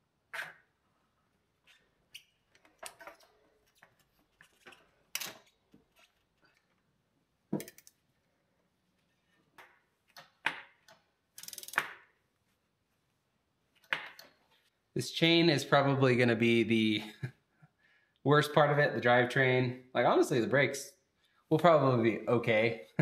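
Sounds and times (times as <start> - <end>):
clicks and knocks on bicycle drivetrain: 9.6 - 12.2
bicycle wheel freewheel ticking: 11.4 - 11.8.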